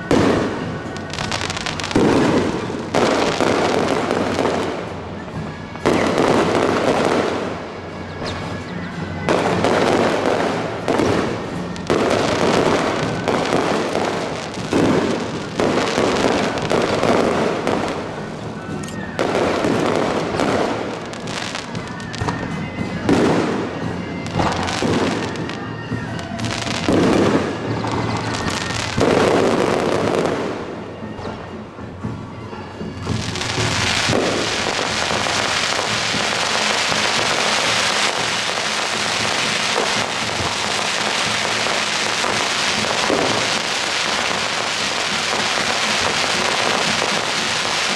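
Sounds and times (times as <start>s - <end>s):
fireworks booming: 0.0s - 8.5s, 9.2s - 31.6s, 32.8s - 47.9s
fireworks crackling: 0.0s - 47.9s.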